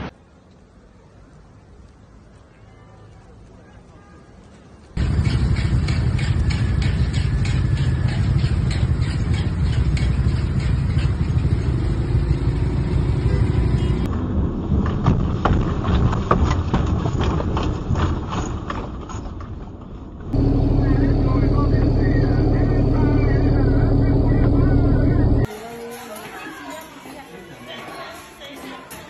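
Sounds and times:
car rumble from inside: 0:20.3 - 0:25.5.

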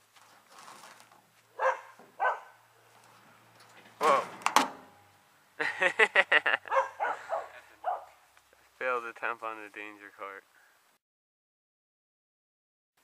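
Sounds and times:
dog barking: 0:01.6 - 0:02.6, 0:06.7 - 0:08.2.

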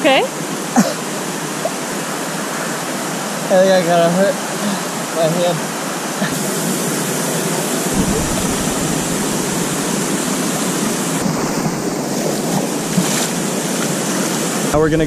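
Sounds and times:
river water flowing over rock: 0:00.3 - 0:14.8
deep rumble: 0:07.9 - 0:13.0.

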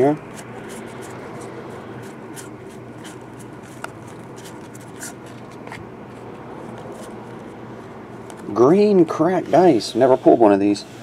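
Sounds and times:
low room hum: 0:00.0 - 0:11.0
cards sliding and clicking: 0:00.2 - 0:07.6, 0:08.2 - 0:08.5.

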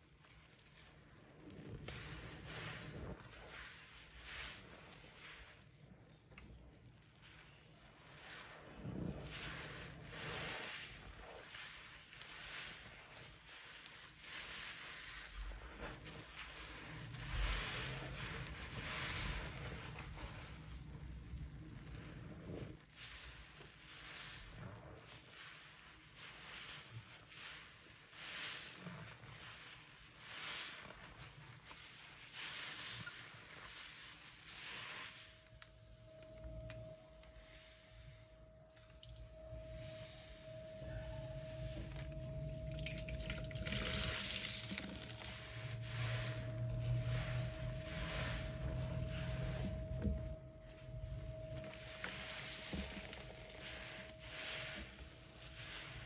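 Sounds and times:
sponge squishing in soapy water: 0:00.0 - 0:56.0
faint steady tone: 0:32.4 - 0:56.0.

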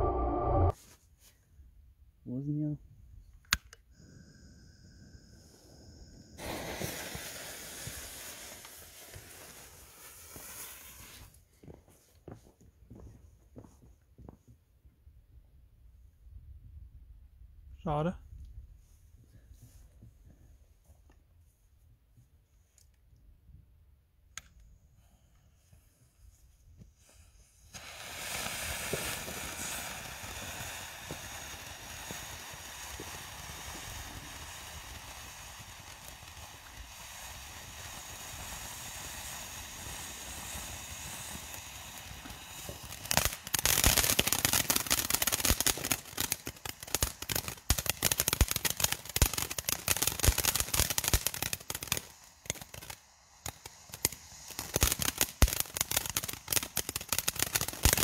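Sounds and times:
fireworks crackling: 0:03.5 - 0:13.1, 0:27.0 - 0:58.0
fireworks fountain hissing: 0:03.9 - 0:12.1, 0:27.0 - 0:58.0.

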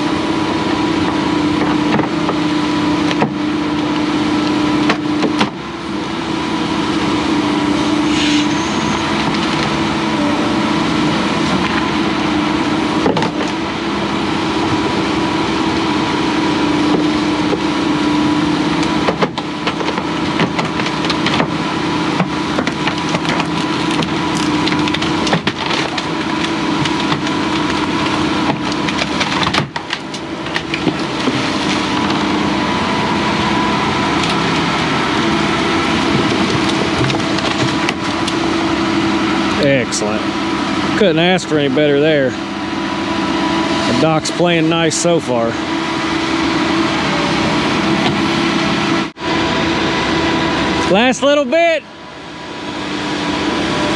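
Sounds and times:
excavator diesel engine running: 0:00.0 - 0:53.9
wooden boards knocking and cracking: 0:01.0 - 0:02.4, 0:03.0 - 0:04.0, 0:04.8 - 0:05.6, 0:13.0 - 0:13.6, 0:18.9 - 0:32.2, 0:35.8 - 0:38.4.

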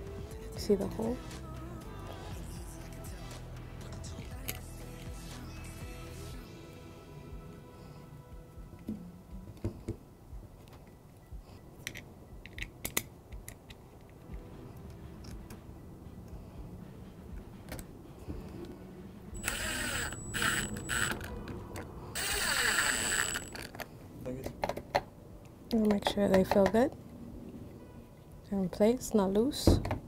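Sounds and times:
parts clicking and tapping: 0:11.8 - 0:14.3
power screwdriver whining: 0:19.4 - 0:21.3, 0:22.2 - 0:23.8.

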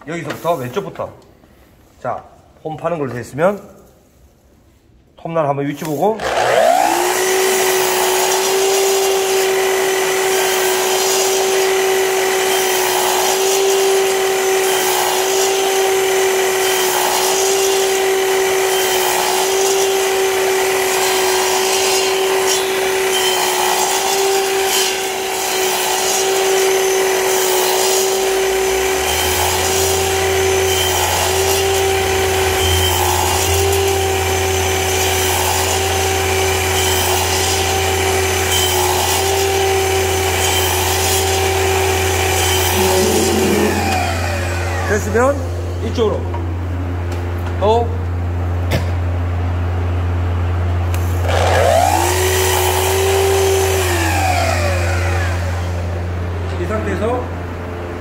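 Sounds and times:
saw blade cutting wood: 0:05.8 - 0:46.1, 0:50.9 - 0:55.4
miter saw whining: 0:06.1 - 0:47.4, 0:50.9 - 0:56.4
low hum: 0:42.6 - 0:44.9.

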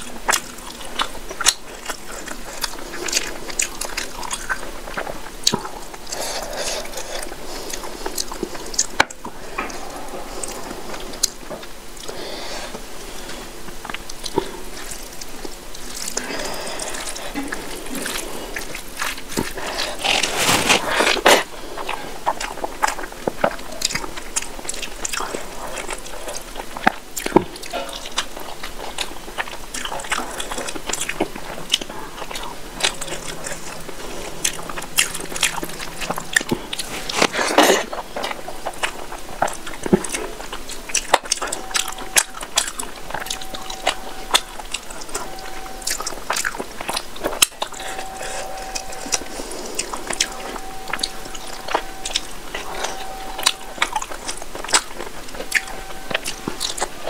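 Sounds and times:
chewing: 0:00.0 - 0:57.0
rustling smears: 0:16.4 - 0:22.2.

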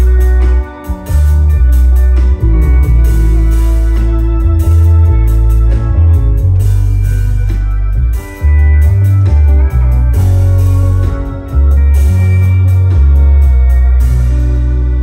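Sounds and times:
heavy bass: 0:00.0 - 0:15.0
rock band playing: 0:00.0 - 0:15.0.

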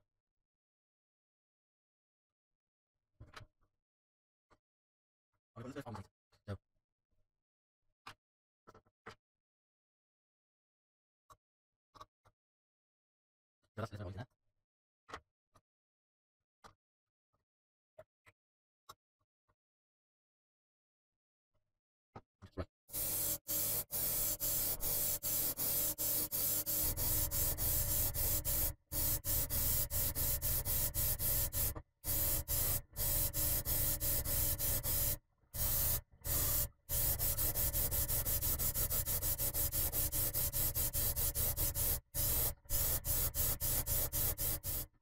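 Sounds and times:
airbrush spraying hiss: 0:22.9 - 0:44.9.

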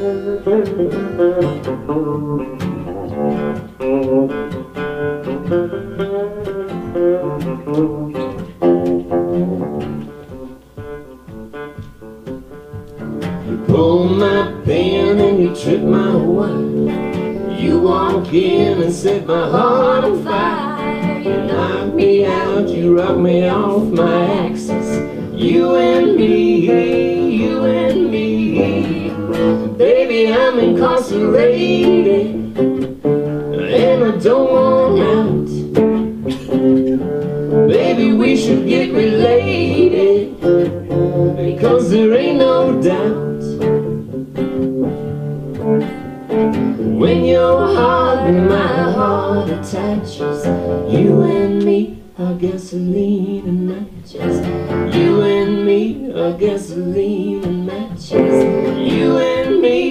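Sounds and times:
second guitar: 0:00.0 - 0:59.9
strummed acoustic guitar: 0:00.0 - 0:59.9
woman singing: 0:13.6 - 0:32.9, 0:33.6 - 0:35.8, 0:37.7 - 0:43.7, 0:46.8 - 0:59.9.

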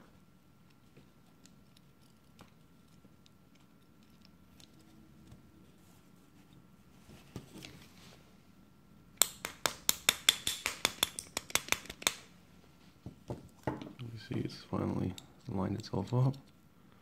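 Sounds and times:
small hammer tapping on metal: 0:09.2 - 0:12.2.

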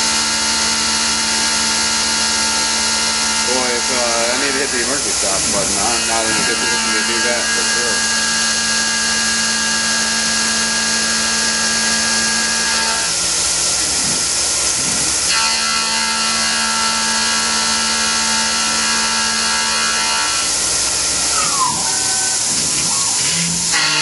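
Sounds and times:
milling cutter tone: 0:01.5 - 0:13.1, 0:15.3 - 0:24.0
coolant spray hiss: 0:03.8 - 0:06.0.

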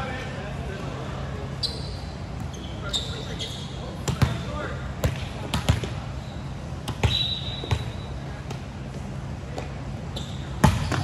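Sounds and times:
volleyball bouncing on gym floor: 0:04.0 - 0:04.4, 0:05.0 - 0:06.0, 0:06.8 - 0:08.7, 0:10.6 - 0:11.0.

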